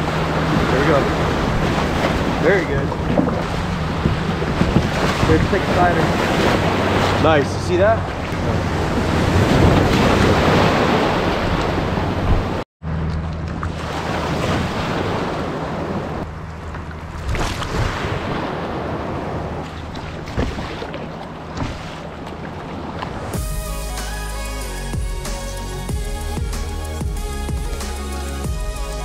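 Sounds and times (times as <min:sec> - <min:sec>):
wind on microphone: 0:00.0 - 0:07.3
paddle splashes: 0:00.0 - 0:12.6, 0:13.2 - 0:23.4
wave washing over kayak: 0:00.0 - 0:12.6, 0:13.6 - 0:23.5
water washing against hull: 0:00.0 - 0:23.9.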